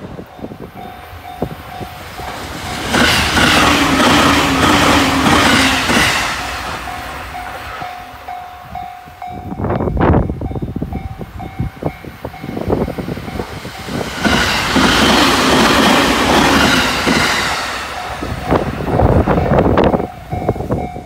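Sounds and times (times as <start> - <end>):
level crossing warning bell: 0.0 - 14.0, 15.9 - 21.0
electric train passing: 0.0 - 21.0
wheels clacking over rail joints: 0.8 - 9.0.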